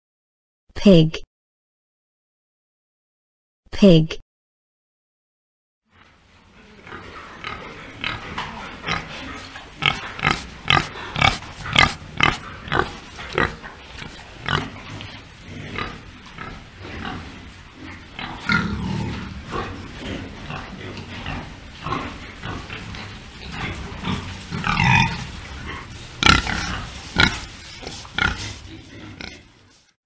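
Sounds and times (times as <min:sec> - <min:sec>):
pigs grunting: 0:06.5 - 0:29.9.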